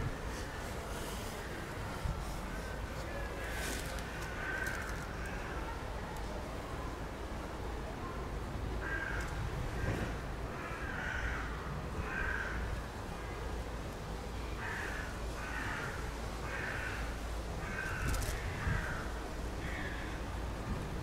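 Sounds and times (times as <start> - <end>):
crow cawing: 3.4 - 5.6, 8.8 - 9.9, 10.6 - 12.7, 14.6 - 20.2.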